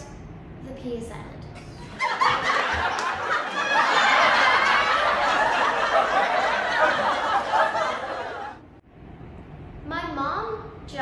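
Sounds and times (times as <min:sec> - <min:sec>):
loud laughter: 0:01.9 - 0:08.6.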